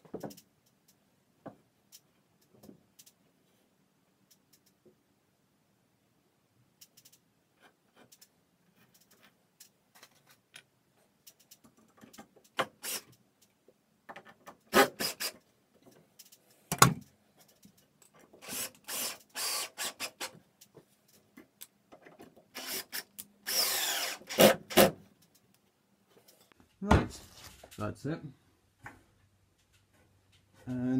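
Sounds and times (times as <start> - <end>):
knocks and clicks of handling wood: 0.0 - 3.2, 13.6 - 14.7, 15.8 - 18.4, 20.3 - 22.5
power drill driving screws into wood: 12.6 - 13.2, 14.7 - 15.4, 18.4 - 20.4, 22.5 - 25.0.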